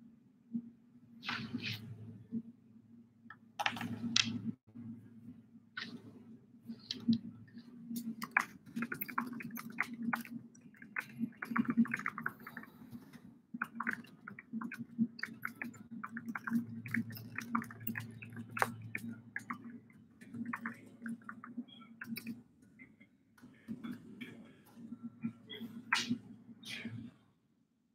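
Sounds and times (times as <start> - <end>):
computer keyboard typing: 3.6 - 4.3, 8.0 - 22.4.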